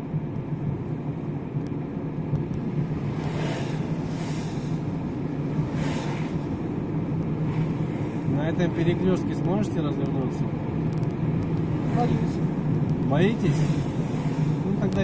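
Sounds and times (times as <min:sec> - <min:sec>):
car engine and tyre drone: 0:00.0 - 0:15.0
passing cars hiss: 0:02.9 - 0:09.1, 0:13.1 - 0:15.0.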